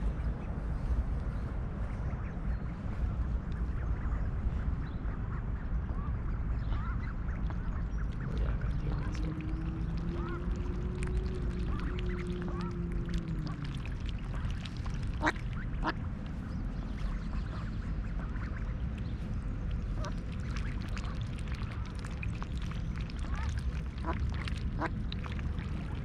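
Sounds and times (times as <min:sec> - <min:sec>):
low steady rumble: 0:00.0 - 0:26.0
ducks quacking and peeping: 0:06.4 - 0:16.0, 0:16.8 - 0:25.4.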